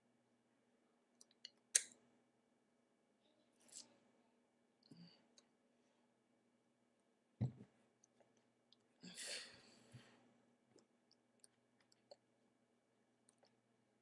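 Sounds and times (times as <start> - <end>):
low thump: 7.4 - 7.7.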